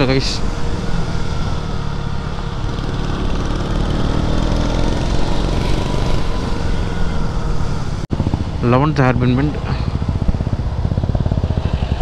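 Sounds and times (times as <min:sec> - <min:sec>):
motorcycle engine pulling uphill: 0:00.0 - 0:12.0
wind on microphone: 0:07.7 - 0:12.0.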